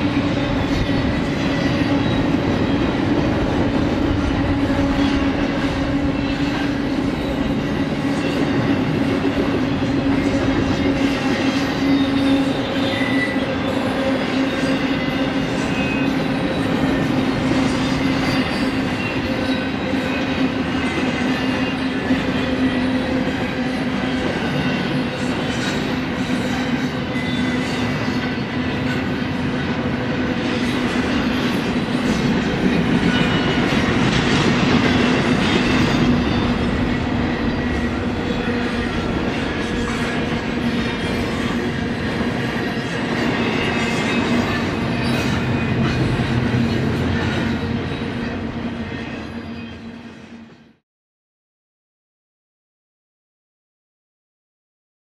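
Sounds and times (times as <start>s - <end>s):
steel wheels rumbling on rails: 0.0s - 50.3s
high wheel squeals: 11.3s - 20.5s.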